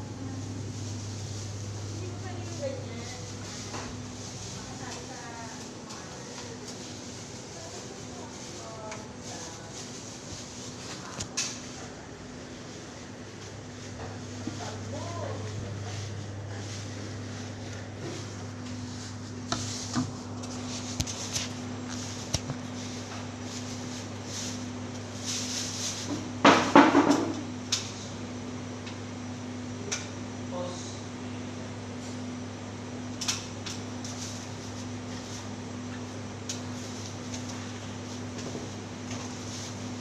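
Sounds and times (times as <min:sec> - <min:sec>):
steady low hum: 0:00.0 - 0:26.4.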